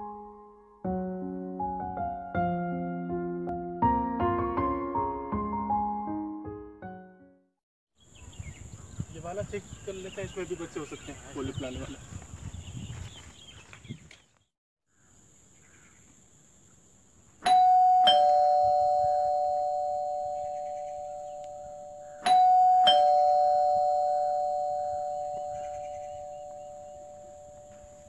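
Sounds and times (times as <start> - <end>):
electric doorbell ding-dong chime: 17.4 - 28.0.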